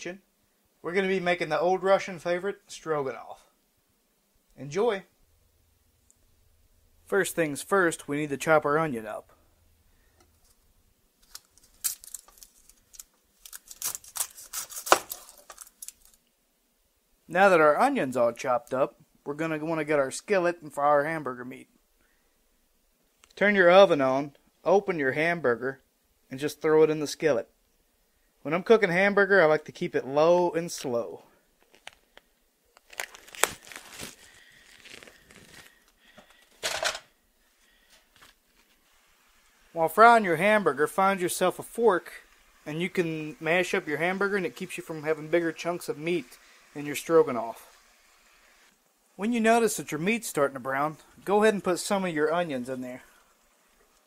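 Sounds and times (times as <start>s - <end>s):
onion skin crackling: 9.3s - 16.3s, 31.6s - 36.5s
plastic packaging tearing and crinkling: 11.2s - 16.3s, 31.6s - 36.6s.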